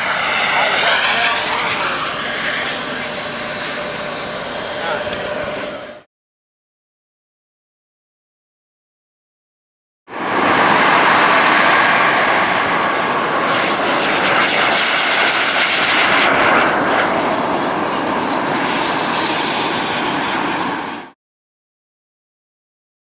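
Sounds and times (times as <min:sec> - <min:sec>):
jet turbine roar: 0:00.0 - 0:06.1, 0:10.1 - 0:21.2.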